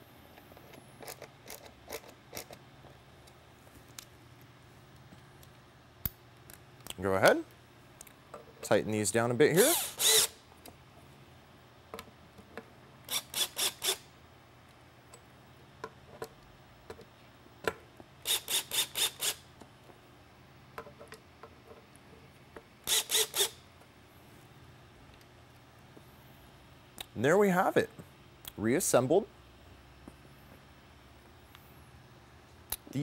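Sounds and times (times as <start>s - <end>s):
cordless drill driving screws: 9.6s - 10.4s, 13.1s - 14.0s, 18.3s - 19.4s, 22.9s - 23.5s.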